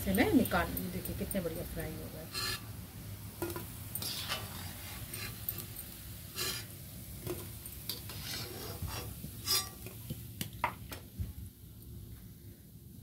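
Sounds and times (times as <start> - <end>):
frying oil bubbling: 0.0 - 13.0
skimmer scraping steel pan: 2.3 - 2.7, 3.4 - 5.7, 6.3 - 10.0.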